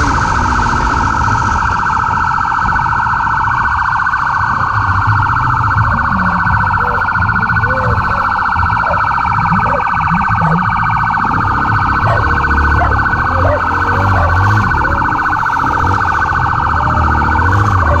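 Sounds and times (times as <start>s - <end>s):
police siren warbling: 0.0s - 18.0s
motorcycle engine running: 5.0s - 18.0s.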